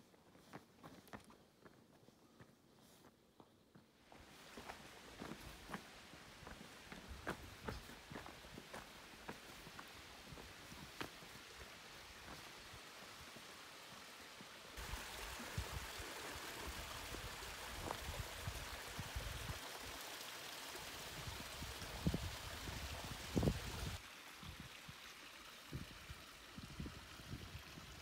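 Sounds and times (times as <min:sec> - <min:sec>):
faint hiss: 0:04.0 - 0:27.6
water trickling over rock: 0:14.8 - 0:28.0.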